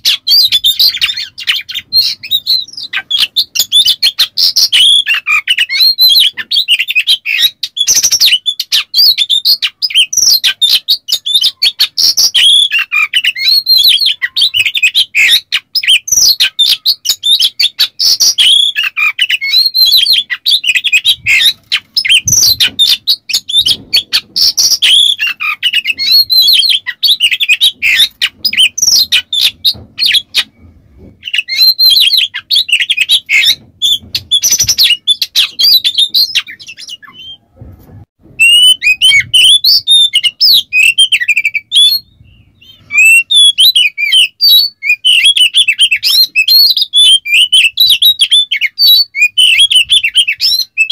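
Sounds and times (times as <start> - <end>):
harsh clicking bird chatter: 0.0 - 37.2
magpie-robin singing: 0.0 - 37.4, 38.4 - 50.9.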